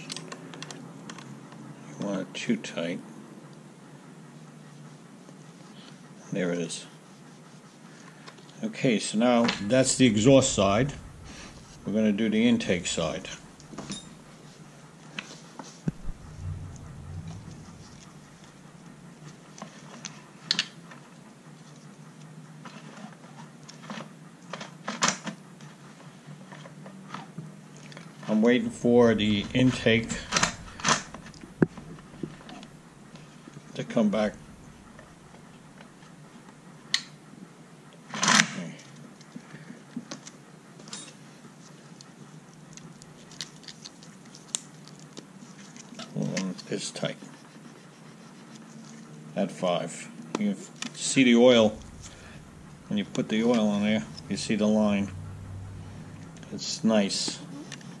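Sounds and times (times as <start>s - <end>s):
faint steady low hum: 9.2s - 15.1s, 15.9s - 20.0s, 28.4s - 36.9s, 49.6s - 58.0s
metal clatter: 9.5s - 14.5s.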